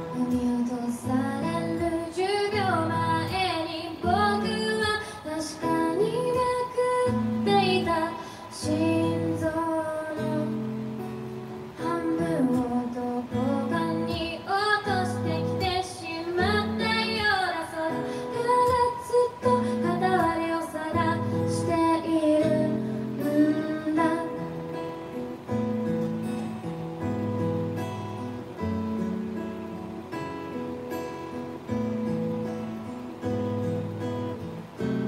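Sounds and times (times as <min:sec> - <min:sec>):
woman singing: 0:00.0 - 0:24.9
acoustic guitar chords: 0:00.0 - 0:35.0.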